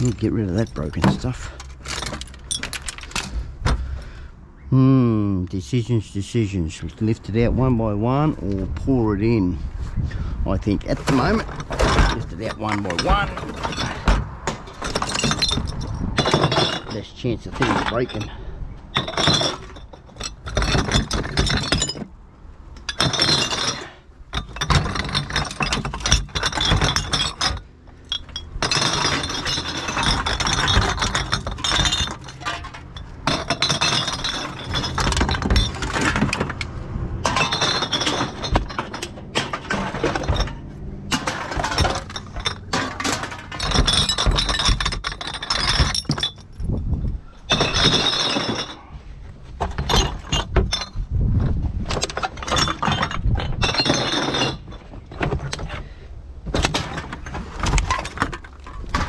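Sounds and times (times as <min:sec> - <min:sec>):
glass bottles clinking: 0:00.0 - 0:03.3, 0:10.9 - 0:36.6, 0:37.2 - 0:46.8, 0:47.4 - 0:49.0, 0:49.6 - 0:51.0, 0:51.9 - 0:55.9.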